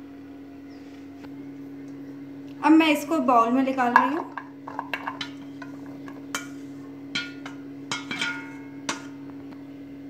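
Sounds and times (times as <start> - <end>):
steady low hum: 0.0 - 10.0
spatula knocking on metal colander: 7.1 - 9.2.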